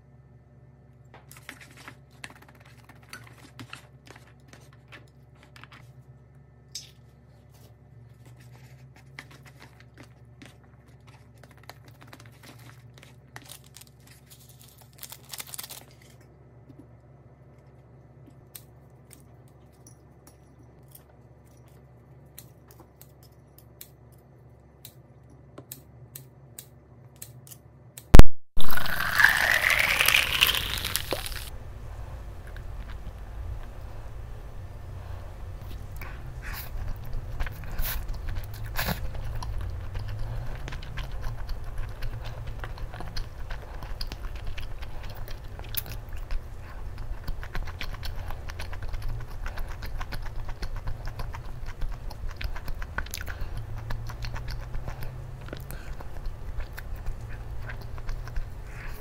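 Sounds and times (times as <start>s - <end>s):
steady low hum: 0.0s - 59.0s
sauce sachet crinkling: 28.6s - 31.5s.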